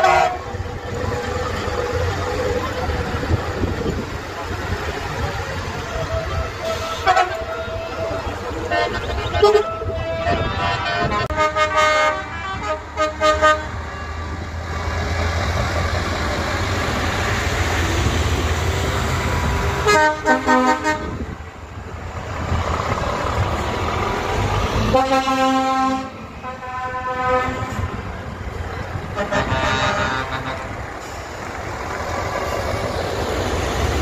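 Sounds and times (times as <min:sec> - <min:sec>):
truck air horns honking: 0:00.0 - 0:00.7, 0:05.6 - 0:14.5, 0:19.7 - 0:21.4, 0:24.8 - 0:28.1, 0:29.0 - 0:31.2
truck engines rumbling: 0:00.0 - 0:34.0.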